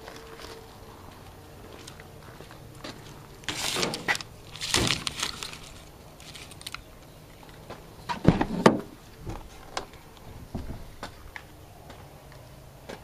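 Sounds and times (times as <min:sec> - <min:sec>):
rustling and scraping: 0:01.8 - 0:11.4.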